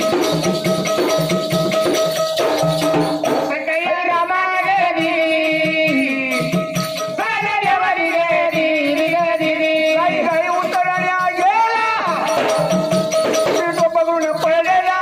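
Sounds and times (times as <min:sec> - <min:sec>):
regular drum beat: 0:00.0 - 0:15.0
jingling rattle: 0:08.3 - 0:15.0.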